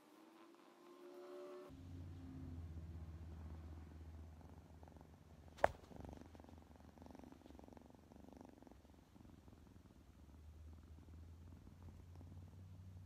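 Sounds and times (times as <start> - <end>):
cat purring: 2.4 - 13.0
sharp knock of phone falling: 5.6 - 5.8.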